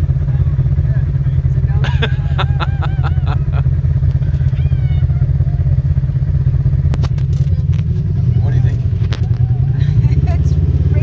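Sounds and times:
utility vehicle engine idling: 0.0s - 11.0s
sharp clicks and rattles: 6.8s - 8.1s.

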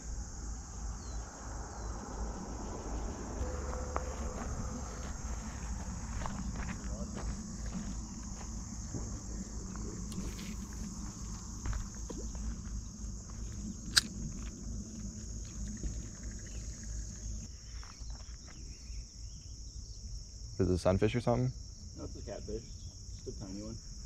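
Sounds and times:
low rumble: 0.0s - 17.5s
insects chirping chorus: 0.0s - 24.0s
sharp click: 13.9s - 14.1s.

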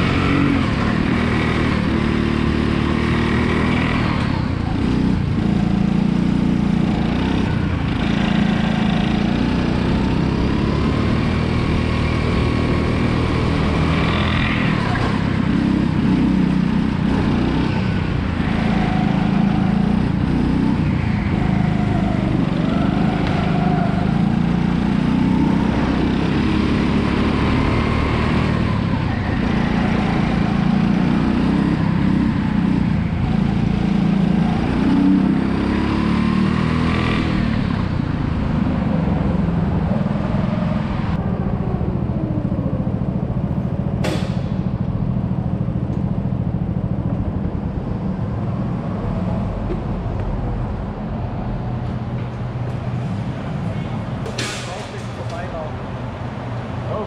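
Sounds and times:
go-kart engine running hard: 0.0s - 57.0s.

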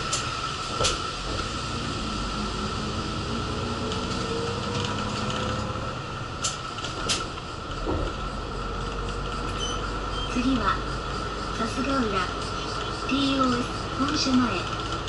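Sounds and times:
bus engine and road noise: 0.0s - 15.0s.

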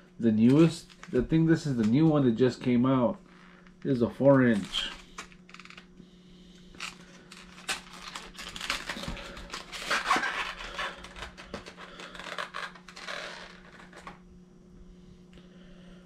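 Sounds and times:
plastic packaging crinkling: 0.4s - 1.2s, 4.5s - 5.8s, 6.8s - 14.1s.

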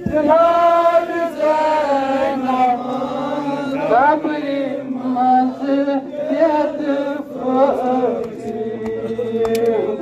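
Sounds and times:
man chanting into a microphone: 0.0s - 10.0s.

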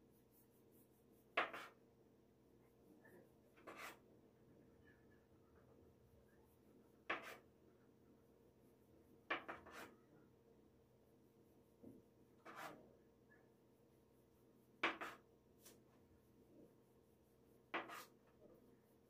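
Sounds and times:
rolling pin knocking on wooden board: 14.8s - 15.2s.

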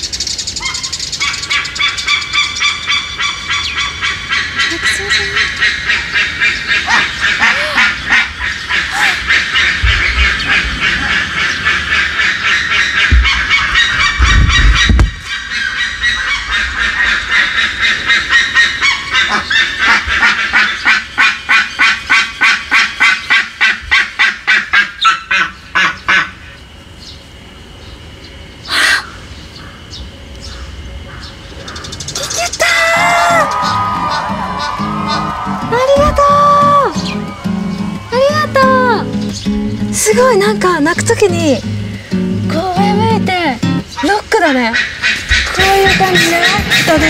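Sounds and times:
eagles yelping calls: 0.6s - 26.4s, 28.6s - 29.8s, 31.1s - 39.9s, 43.8s - 47.0s
low rumbles on microphone: 9.5s - 11.9s, 13.0s - 15.3s.

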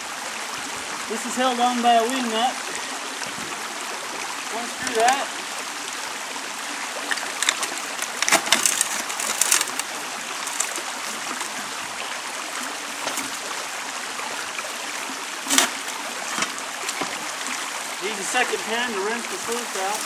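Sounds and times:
creek flowing: 0.0s - 20.0s
water splashing in plastic pan: 7.0s - 11.8s, 14.4s - 18.5s.

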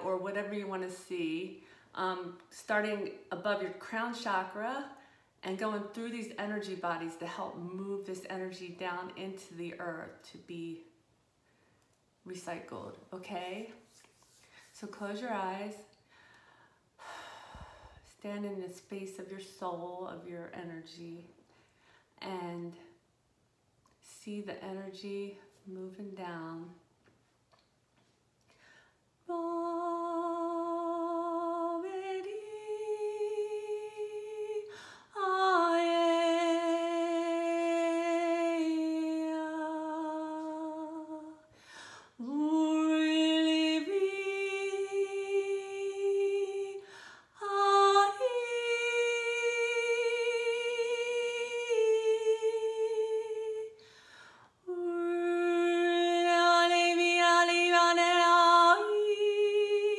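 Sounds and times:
woman breathing: 16.0s - 18.2s, 21.5s - 22.2s, 28.5s - 29.2s, 34.7s - 35.2s, 41.5s - 42.2s, 46.8s - 47.4s, 53.8s - 54.6s.

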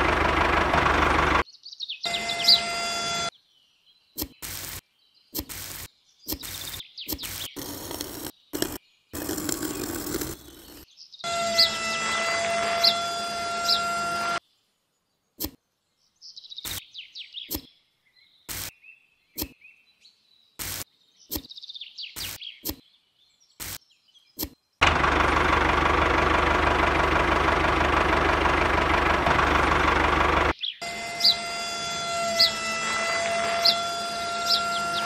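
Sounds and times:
toy tractor motor running: 7.2s - 14.4s, 24.9s - 35.0s.

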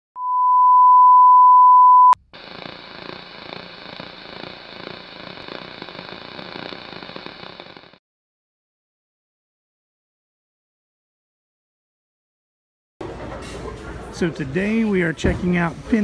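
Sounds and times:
test-tone beep: 0.2s - 2.2s
television static hissing: 2.2s - 8.0s.

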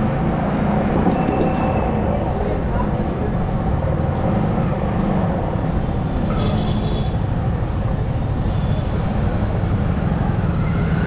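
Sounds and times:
brief high squeal: 6.4s - 7.5s.

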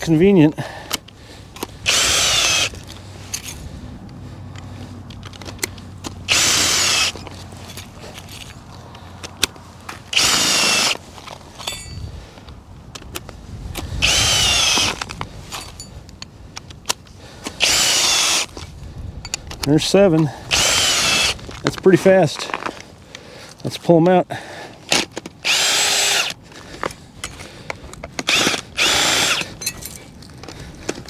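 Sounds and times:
cordless drill whine: 1.8s - 2.8s, 6.3s - 7.2s, 10.1s - 11.0s, 14.0s - 15.1s, 17.6s - 18.6s, 20.5s - 21.4s, 25.4s - 26.4s, 28.3s - 29.6s.

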